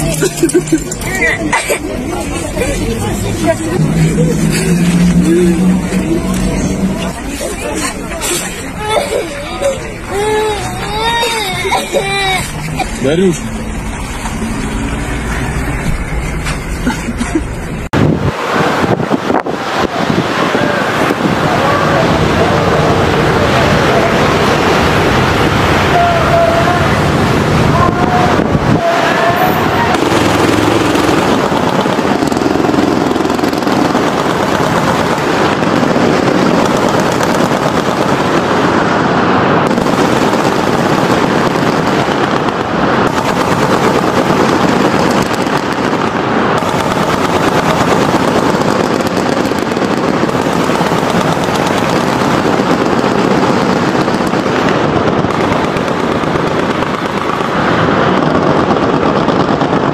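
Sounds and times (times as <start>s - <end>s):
machine gun fire: 29.9s - 38.8s, 39.6s - 59.9s.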